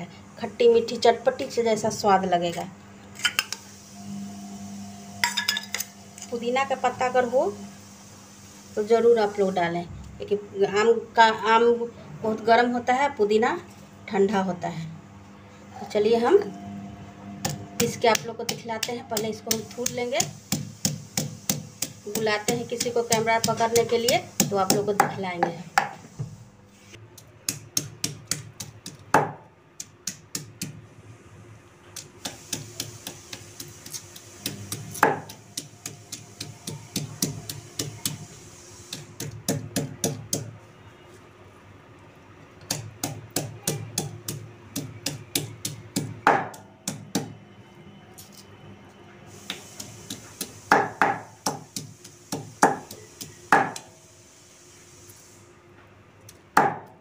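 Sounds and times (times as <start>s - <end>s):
stone pounding on stone slab: 34.4s - 38.2s.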